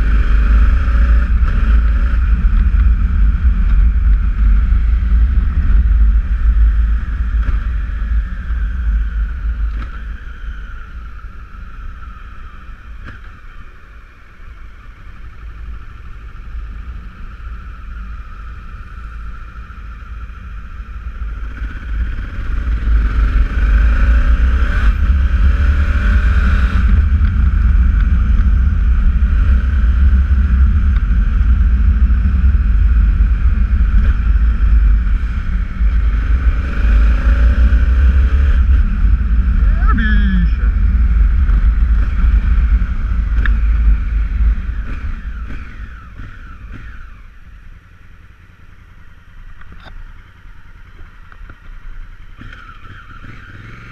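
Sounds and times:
wind rumble on microphone: 0:00.0 - 0:13.2, 0:19.4 - 0:47.6
motorcycle engine: 0:00.0 - 0:53.9.

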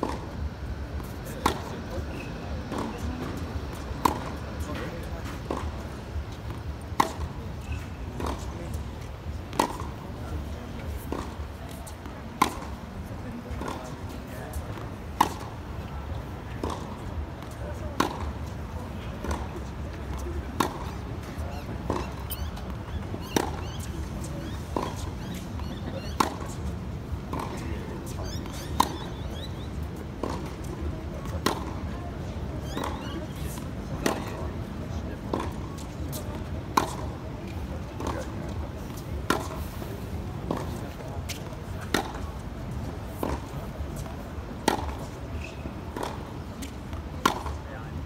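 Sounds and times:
tennis balls struck by rackets: 0:00.0 - 0:48.0.

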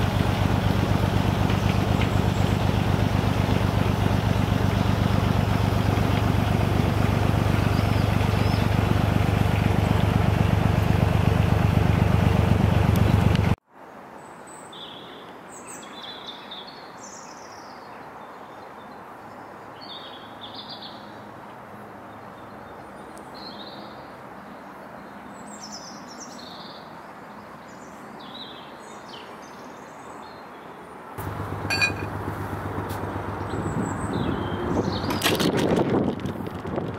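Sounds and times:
boat engine throbbing: 0:00.0 - 0:13.6, 0:31.2 - 0:35.1
small birds chirping: 0:01.4 - 0:03.6, 0:04.7 - 0:10.2, 0:31.6 - 0:35.4.

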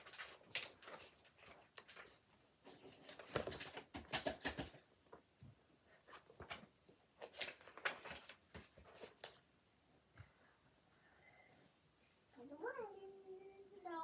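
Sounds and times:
book pages turning: 0:00.0 - 0:04.8, 0:06.0 - 0:09.4
paper rustling: 0:00.0 - 0:04.9, 0:05.9 - 0:09.5.

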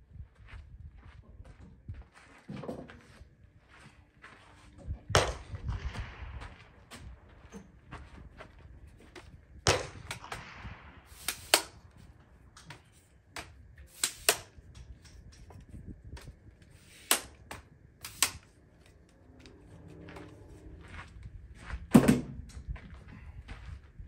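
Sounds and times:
gunshots with echo: 0:05.2 - 0:06.9, 0:09.7 - 0:11.9
tripod clicking and knocking: 0:11.2 - 0:11.8, 0:12.6 - 0:18.5.

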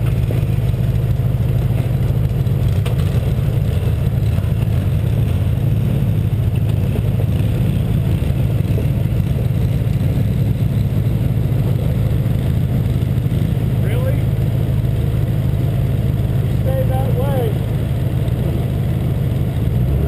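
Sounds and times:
pickup truck engine running: 0:00.0 - 0:20.0.

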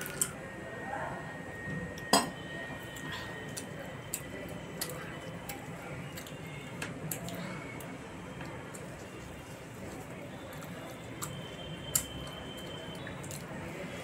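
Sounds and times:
person chewing with wet smacks: 0:02.8 - 0:14.0.

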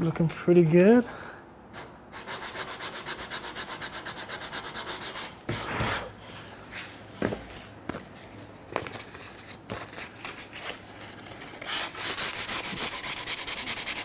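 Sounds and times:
long sandpaper scrape: 0:02.2 - 0:05.4, 0:11.2 - 0:14.0
sandpaper rubbing on wood: 0:02.2 - 0:05.4, 0:11.6 - 0:14.0.

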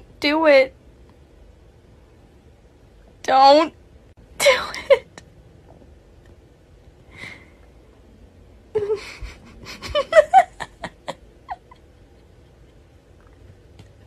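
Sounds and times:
woman giggling: 0:08.7 - 0:13.0.

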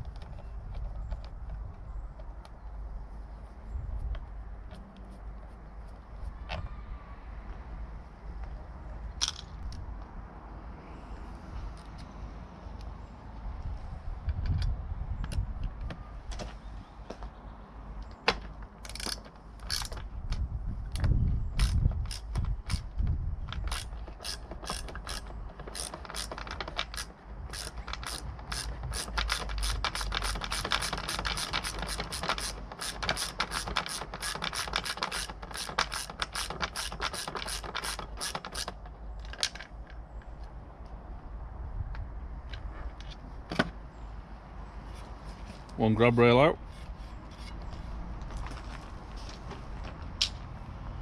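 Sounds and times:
ratchet wrench clicking: 0:18.8 - 0:20.0, 0:21.6 - 0:39.5.

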